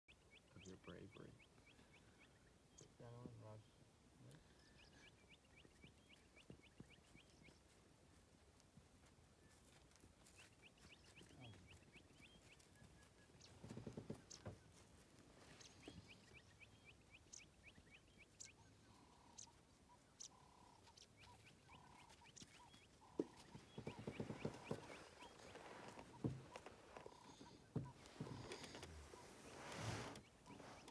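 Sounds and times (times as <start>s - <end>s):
faint bird calls: 0.1s - 7.8s, 9.4s - 30.9s.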